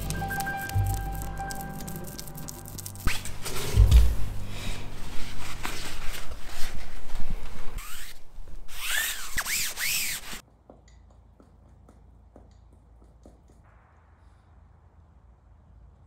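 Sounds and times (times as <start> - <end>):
gloved hand rubbing plastic: 0.0 - 10.4
squeaky strokes: 0.0 - 10.4.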